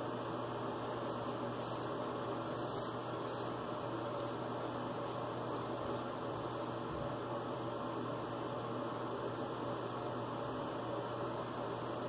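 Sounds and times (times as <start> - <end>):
steady low hum: 0.0 - 12.0
razor scraping stubble: 1.0 - 10.0.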